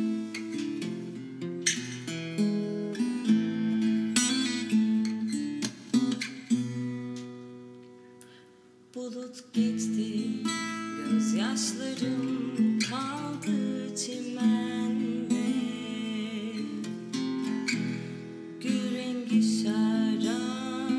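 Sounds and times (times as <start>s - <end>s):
acoustic guitar strumming chords: 0.0s - 20.9s.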